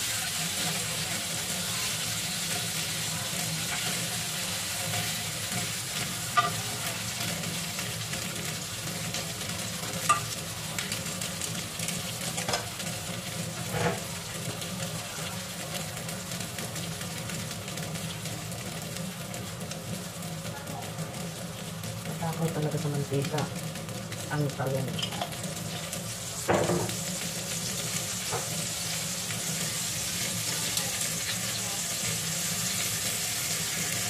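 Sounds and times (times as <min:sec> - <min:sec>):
food sizzling in hot oil: 0:00.0 - 0:34.0
metal tongs clicking on pan: 0:10.1 - 0:10.4, 0:25.0 - 0:25.4.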